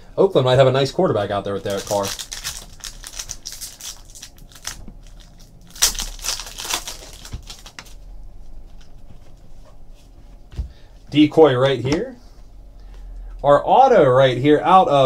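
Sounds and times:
wrapper crinkling and tearing: 1.5s - 8.0s.

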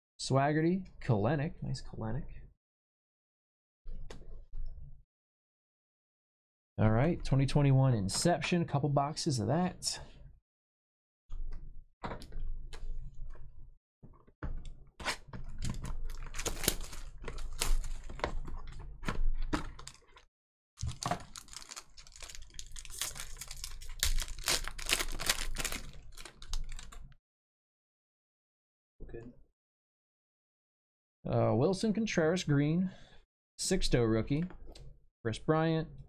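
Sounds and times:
plastic wrap and cardboard crinkling: 15.6s - 18.7s, 19.6s - 20.2s, 20.8s - 27.0s.

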